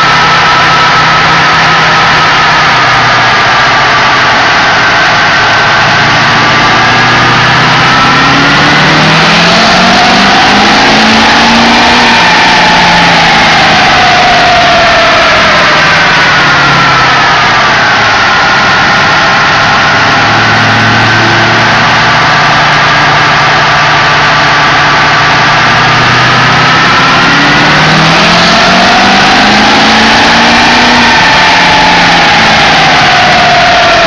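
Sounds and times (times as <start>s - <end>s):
diesel engine running loud: 0.0s - 34.0s
turbo whine: 0.0s - 34.0s.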